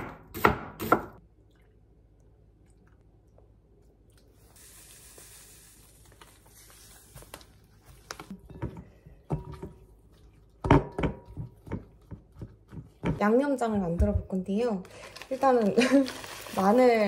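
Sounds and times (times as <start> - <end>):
seasoning pouring with soft hiss: 4.3 - 7.5.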